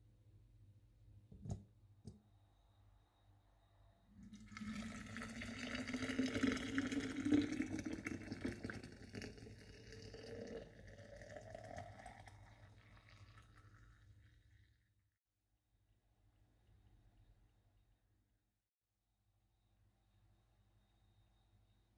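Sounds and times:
water pouring into glass carafe: 0:04.2 - 0:14.6.

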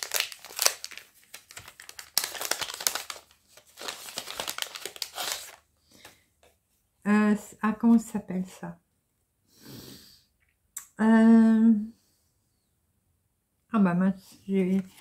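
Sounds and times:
paper sachet rustling and crinkling: 0:00.0 - 0:06.2, 0:14.5 - 0:15.0.

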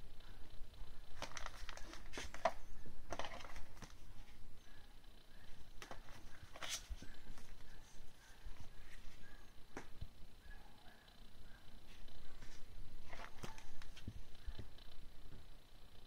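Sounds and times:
plastic wrapping crinkling: 0:01.1 - 0:04.3.

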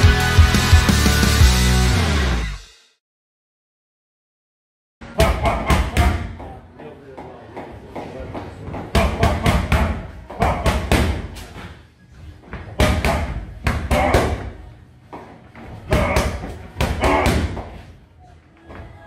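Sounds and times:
boxing gloves slapping mitts: 0:08.0 - 0:11.6, 0:12.5 - 0:17.9.

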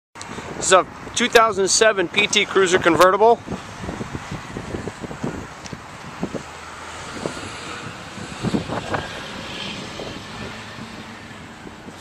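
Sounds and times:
distant engine drone: 0:03.4 - 0:12.0.

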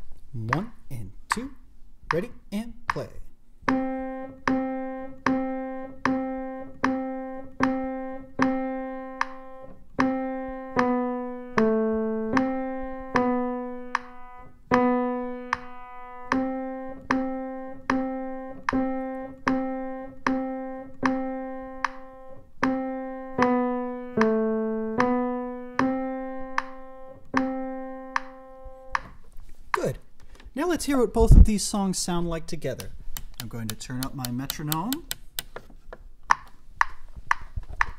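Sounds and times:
piano single notes: 0:03.7 - 0:29.2.

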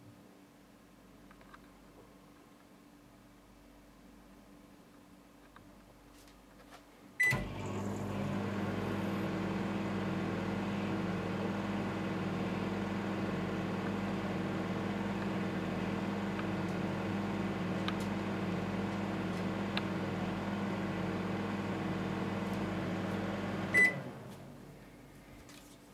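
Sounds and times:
microwave key beep: 0:07.2 - 0:08.6, 0:23.7 - 0:24.1
microwave oven humming: 0:07.2 - 0:25.1.

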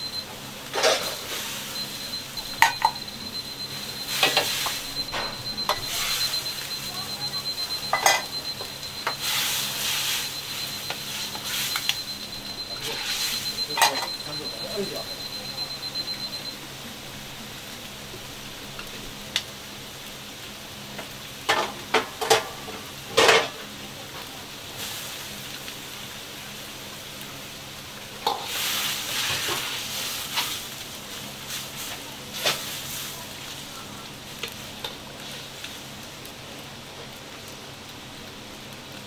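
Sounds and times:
steady low hum: 0:00.0 - 0:19.4
broth bubbling and sizzling: 0:00.0 - 0:39.0.

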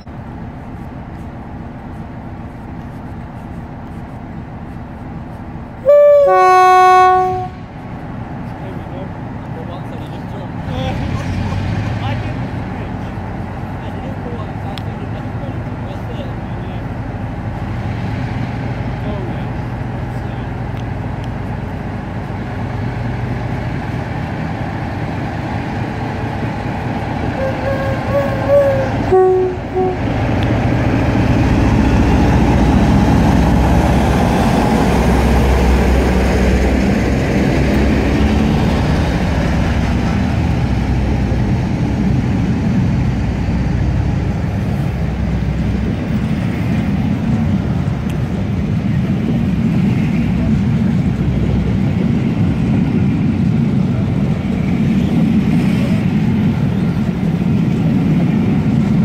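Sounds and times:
diesel locomotive engines rumbling: 0:00.0 - 0:59.0
train coaches rolling by: 0:00.0 - 0:59.0
two-tone train horn: 0:05.8 - 0:07.7, 0:27.4 - 0:30.2.

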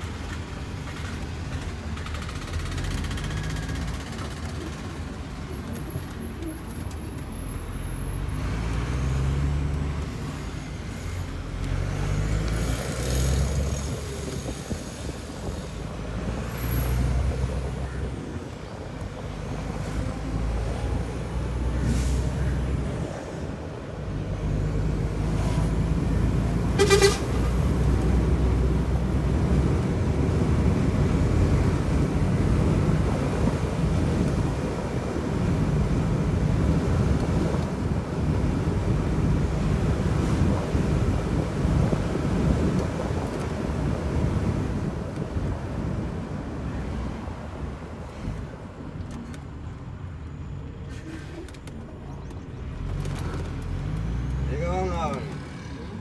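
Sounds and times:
truck diesel engine shifting gears: 0:00.2 - 0:14.7, 0:50.4 - 0:56.0.

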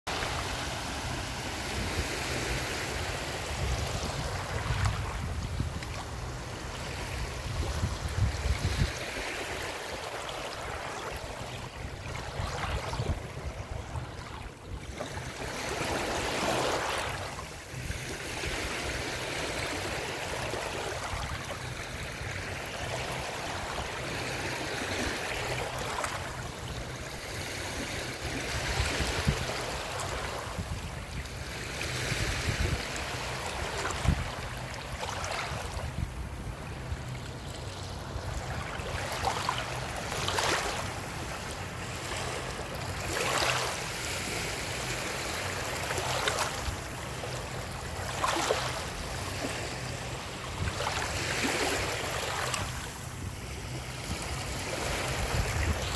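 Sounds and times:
small waves lapping on shore: 0:00.1 - 0:55.9.

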